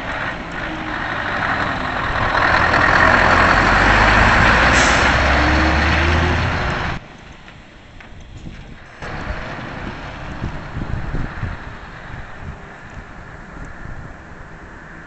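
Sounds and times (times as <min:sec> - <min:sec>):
truck diesel engine passing: 0:00.0 - 0:07.1, 0:08.9 - 0:13.5
air brake hiss: 0:04.6 - 0:05.3.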